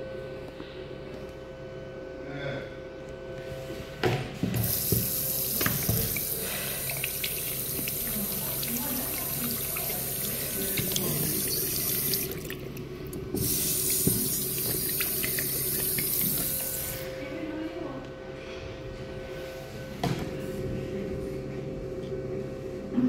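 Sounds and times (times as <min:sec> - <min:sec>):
tap running into basin: 0:04.6 - 0:17.0
water splashing around drain: 0:04.7 - 0:16.9.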